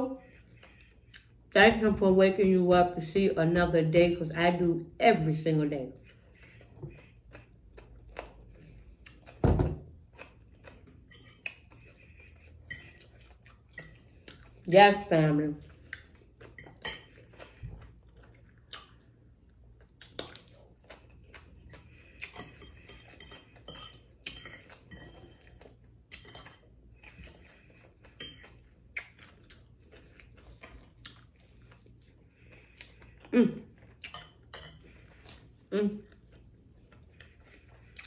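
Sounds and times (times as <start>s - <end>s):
person chewing: 0.2s - 1.5s, 5.9s - 14.7s, 15.6s - 38.0s
fork scraping on a plate: 11.0s - 14.0s.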